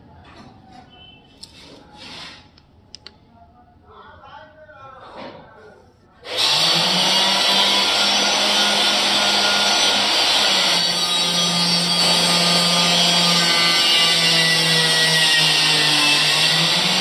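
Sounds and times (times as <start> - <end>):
electric grinder running: 6.3 - 17.0.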